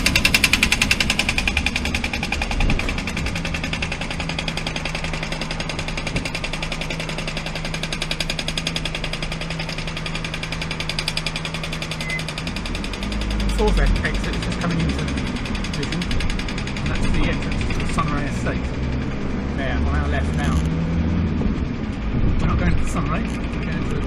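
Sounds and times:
fast even rattle: 0:00.0 - 0:20.8, 0:21.7 - 0:24.0.

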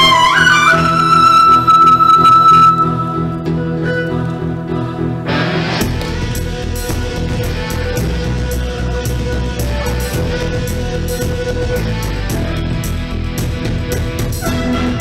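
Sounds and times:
violin: 0:00.0 - 0:15.0
percussion beat with heavy low end: 0:05.8 - 0:15.0.

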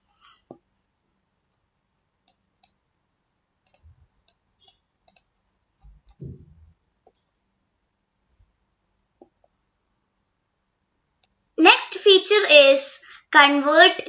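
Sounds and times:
computer mouse clicks: 0:01.5 - 0:02.8, 0:03.6 - 0:06.4
dull low thump: 0:06.1 - 0:06.7.

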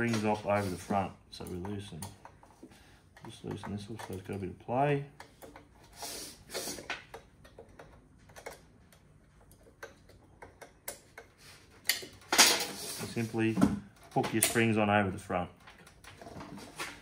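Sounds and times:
small metal clicks and taps: 0:03.1 - 0:04.5, 0:06.9 - 0:12.2.

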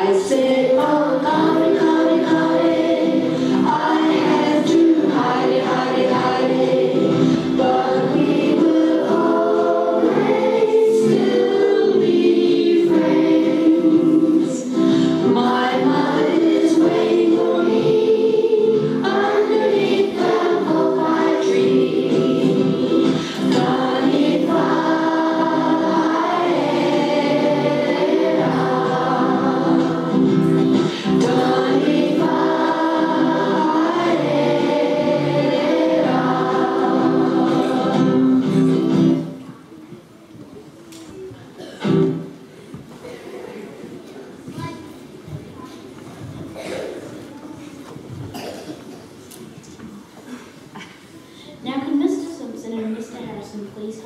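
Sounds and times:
children singing in unison: 0:00.0 - 0:39.3.

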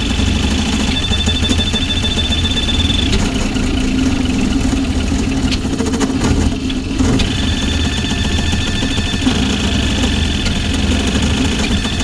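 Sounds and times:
printer mechanical hum and whir: 0:00.0 - 0:12.0
thin high whine: 0:06.7 - 0:12.0.

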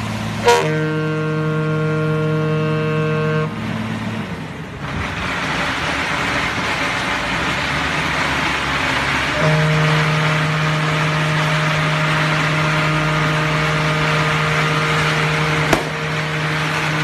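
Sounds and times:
ship's horn: 0:00.0 - 0:03.9, 0:09.2 - 0:17.0
steady rushing noise: 0:10.8 - 0:17.0.

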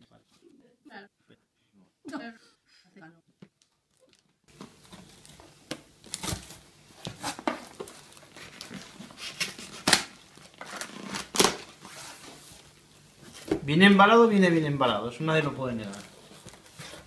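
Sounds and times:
tape crinkling: 0:03.6 - 0:12.9.

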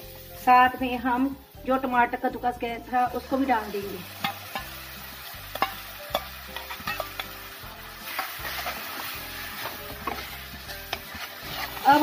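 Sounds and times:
tomato sizzling in hot oil: 0:00.0 - 0:12.0
ladle scraping pan: 0:08.0 - 0:12.0.

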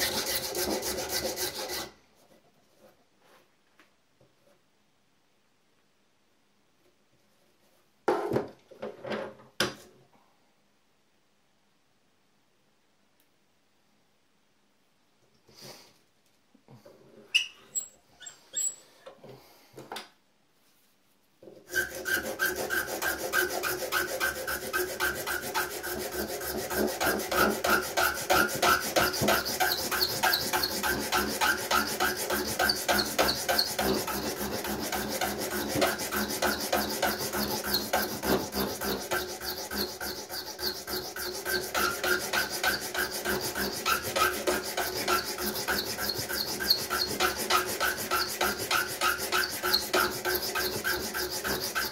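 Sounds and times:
hand file rasping: 0:00.0 - 0:01.9, 0:21.7 - 0:51.9.

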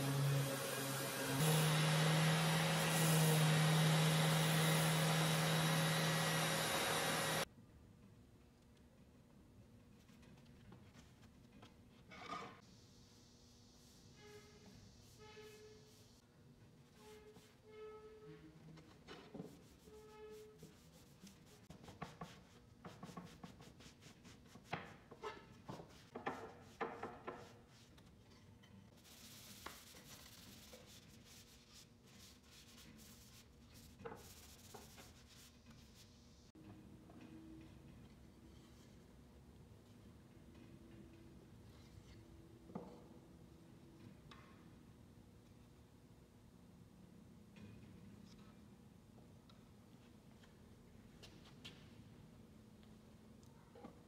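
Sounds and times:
orbital sander running on wood: 0:00.0 - 0:07.4.

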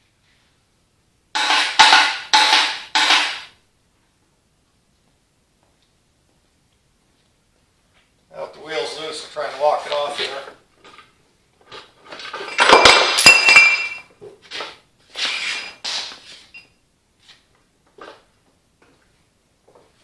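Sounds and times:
metal clamps clanking: 0:12.2 - 0:14.1.

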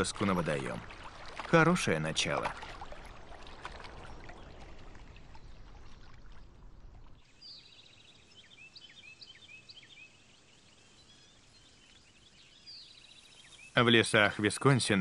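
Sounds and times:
running water: 0:00.0 - 0:07.5
songbirds chirping and trilling: 0:00.0 - 0:15.0.

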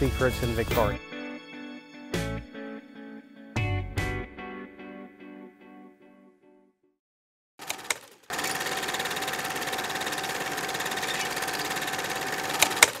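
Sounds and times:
guitar music: 0:00.0 - 0:06.6
fast mechanical rattle with whine: 0:07.6 - 0:13.0.

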